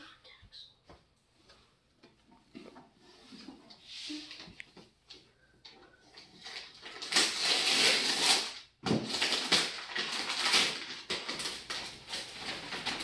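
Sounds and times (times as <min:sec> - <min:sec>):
wrapping paper tearing and crinkling: 0:06.4 - 0:13.0.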